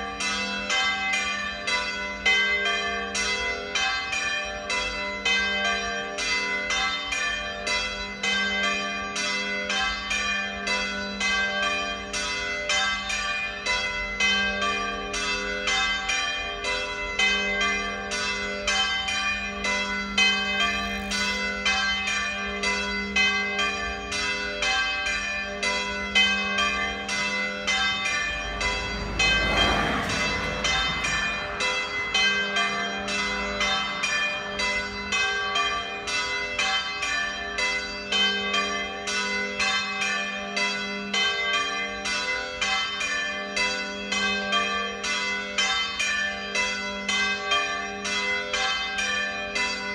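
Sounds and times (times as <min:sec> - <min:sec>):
church bells ringing: 0:00.0 - 0:49.9
rush of noise: 0:28.4 - 0:32.1.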